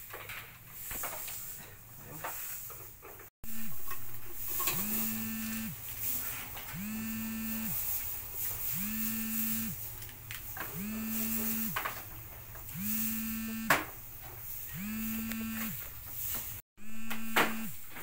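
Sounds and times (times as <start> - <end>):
rising buzzing tone: 3.4 - 5.8, 6.7 - 7.9, 8.7 - 9.8, 12.7 - 13.7, 14.7 - 15.8, 16.8 - 18.0.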